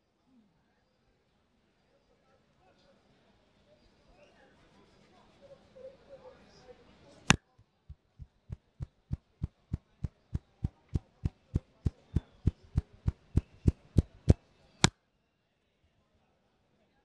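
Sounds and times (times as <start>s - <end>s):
fingertips tapping scalp: 7.9s - 14.4s.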